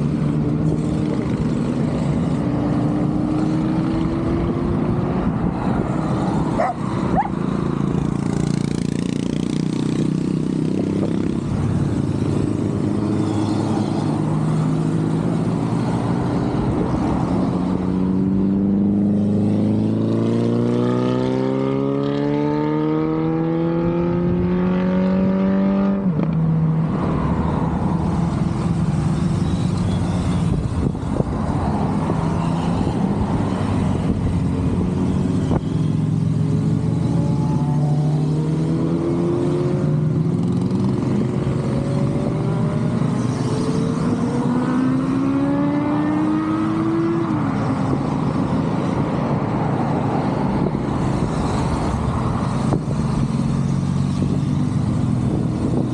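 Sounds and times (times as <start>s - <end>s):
motorcycle accelerating: 0.0s - 55.9s
motorcycles riding past: 0.0s - 55.9s.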